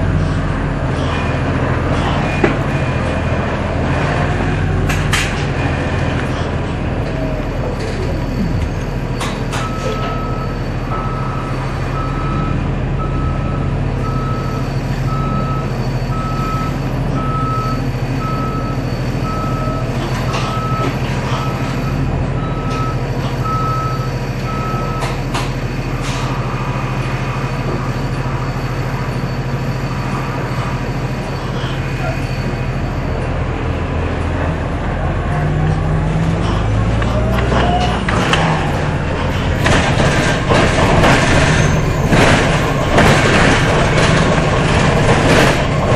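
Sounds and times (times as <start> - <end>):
bus drivetrain hum: 0.0 - 45.9
reversing alarm beeping: 7.0 - 34.2, 36.2 - 45.6.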